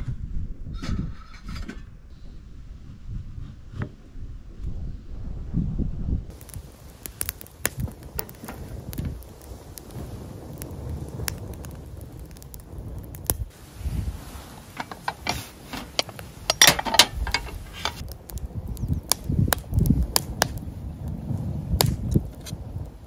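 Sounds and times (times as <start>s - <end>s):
rustling clatter: 14.2s - 18.0s
cookware clicks and knocks: 14.8s - 18.0s.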